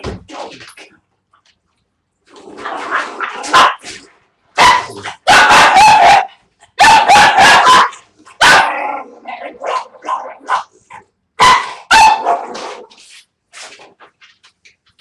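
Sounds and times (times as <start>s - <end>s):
puppy barking: 3.4s - 3.8s, 4.6s - 12.6s.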